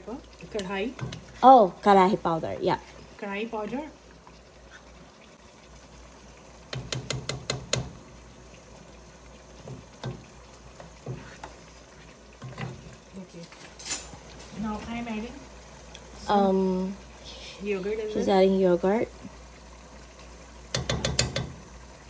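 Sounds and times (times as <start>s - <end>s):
faint sizzle in a pot: 0.0s - 22.0s
spoon knocking against a pot: 6.7s - 8.0s, 20.7s - 21.6s.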